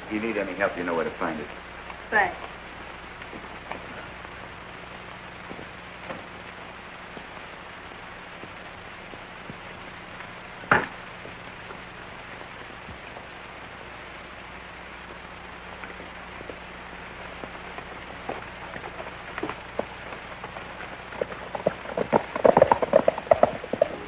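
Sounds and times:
film soundtrack hiss and crackle: 0.0 - 24.0
loud pop: 10.7 - 11.0.

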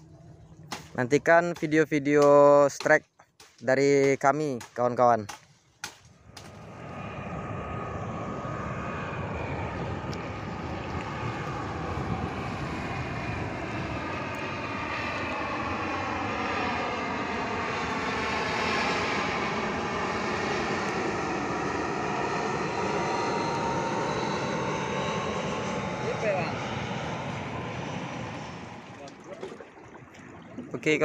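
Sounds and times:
jet engine roar overhead: 6.1 - 31.0
whining engine tones: 6.2 - 31.0.

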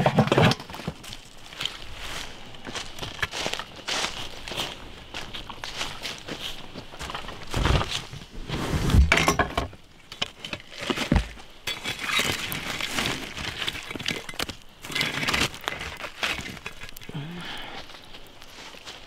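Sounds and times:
wood clattering in campfire: 0.0 - 8.3, 9.0 - 19.0
footsteps crunching on dry leaves: 1.0 - 8.2, 17.7 - 19.0.

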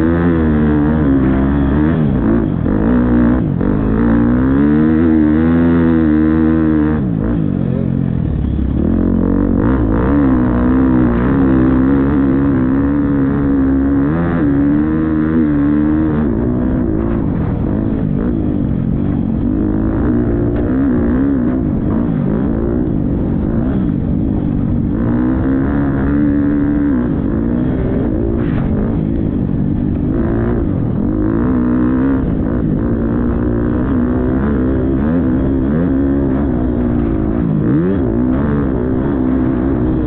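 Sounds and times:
motocross bike engine revving: 0.0 - 40.0.

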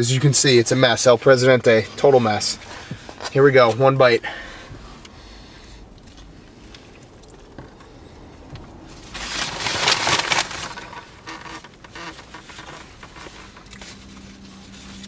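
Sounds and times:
paper rustling and crinkling: 8.9 - 15.0.

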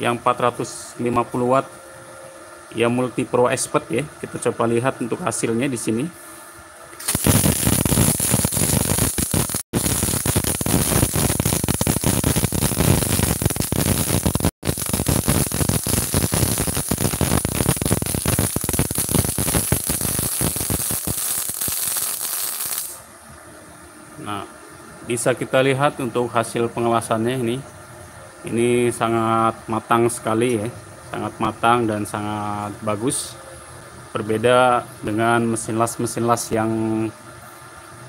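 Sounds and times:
welding arc crackling: 7.0 - 23.0.

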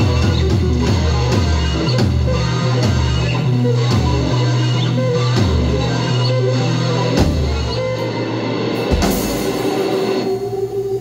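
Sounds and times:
live rock band: 0.0 - 11.0
cymbal crash ringing out: 8.8 - 10.9.

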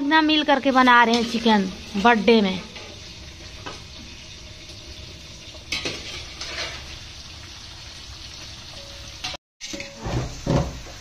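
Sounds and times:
chicken sizzling in a pot: 0.0 - 11.0
spoon scraping a pot: 5.7 - 7.0.

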